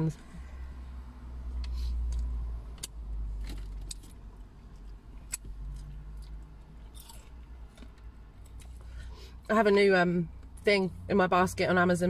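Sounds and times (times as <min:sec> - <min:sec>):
vehicle rumbling past: 0:00.0 - 0:08.3.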